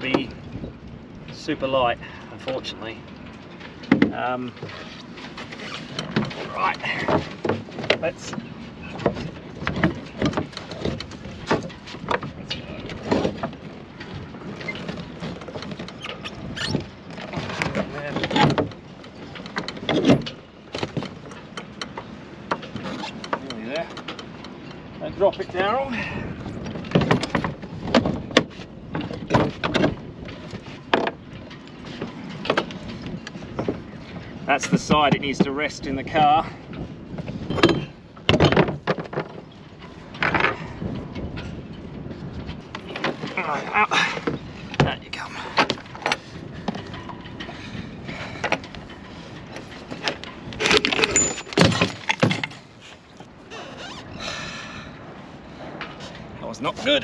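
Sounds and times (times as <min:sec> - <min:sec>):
outboard motor clunks and knocks: 0:00.0 - 0:57.0
metal clunks and knocks: 0:03.6 - 0:04.8, 0:26.6 - 0:33.9, 0:37.2 - 0:41.6, 0:42.4 - 0:52.7.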